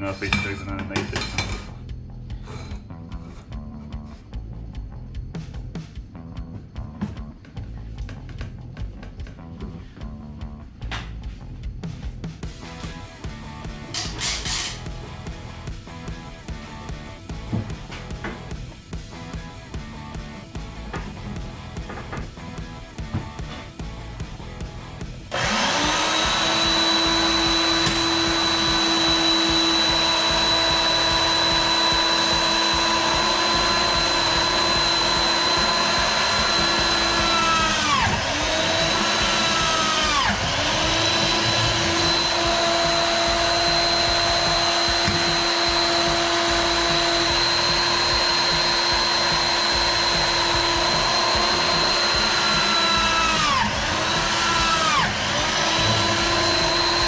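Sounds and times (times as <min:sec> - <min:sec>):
drill press motor whine: 0:25.2 - 0:57.0.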